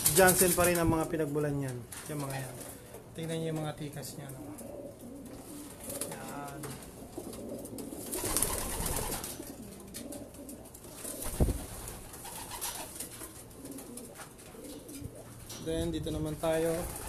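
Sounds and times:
pigeons cooing: 4.0s - 15.6s.

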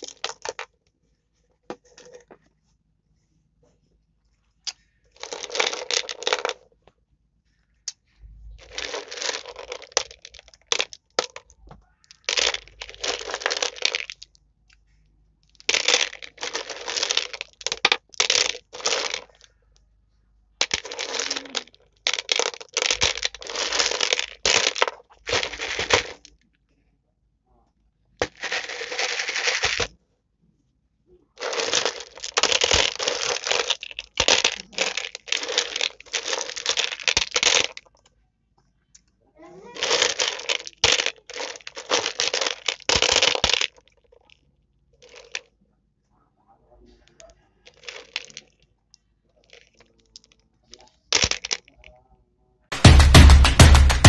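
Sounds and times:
gumballs rattling on plastic tray: 0.0s - 0.7s, 5.2s - 6.6s, 8.6s - 14.3s, 15.5s - 19.5s, 20.6s - 26.3s, 28.2s - 29.9s, 31.4s - 37.9s, 39.7s - 44.1s, 45.0s - 45.5s, 47.7s - 48.5s, 51.2s - 51.8s, 52.7s - 54.0s.

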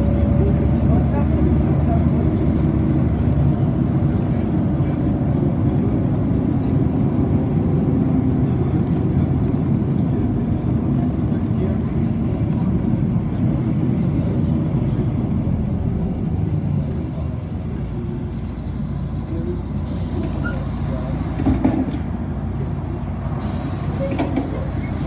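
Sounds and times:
bus engine and road rumble: 0.0s - 25.0s
hiss: 23.4s - 24.1s.

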